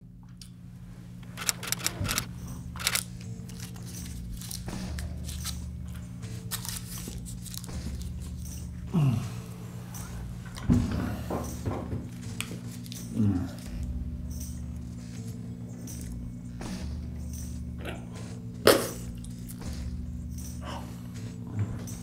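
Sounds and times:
low electrical hum: 0.0 - 22.0
crunchy clicks and crackles: 1.2 - 4.7.

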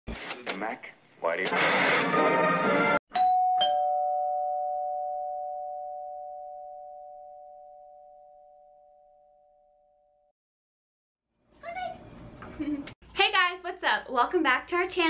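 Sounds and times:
two-note doorbell chime: 3.2 - 9.9.

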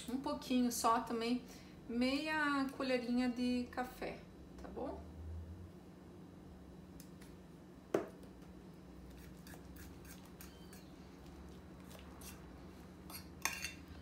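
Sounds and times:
spoon stirring batter: 9.1 - 13.8.

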